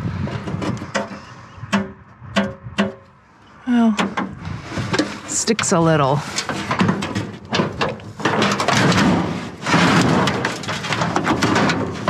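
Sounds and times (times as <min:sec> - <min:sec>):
metal rattling and knocks: 0:00.3 - 0:03.1, 0:06.3 - 0:12.0.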